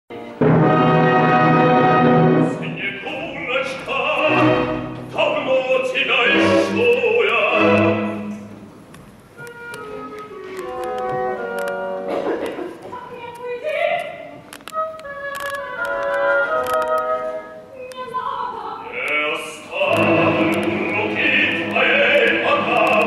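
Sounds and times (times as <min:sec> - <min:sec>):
orchestra playing: 0:00.1 - 0:12.7, 0:19.7 - 0:23.0
baritone singing opera: 0:02.5 - 0:08.2, 0:18.4 - 0:23.0.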